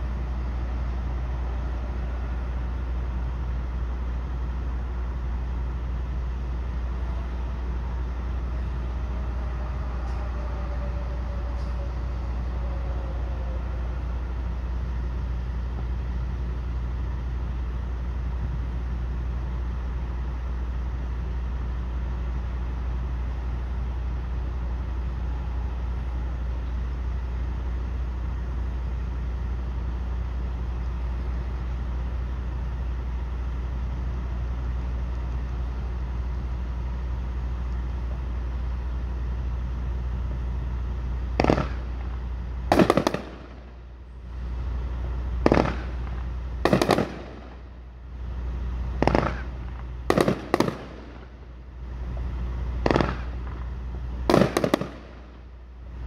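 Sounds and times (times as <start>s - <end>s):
steady low hum: 0.0s - 56.0s
fireworks bursting: 41.3s - 55.6s.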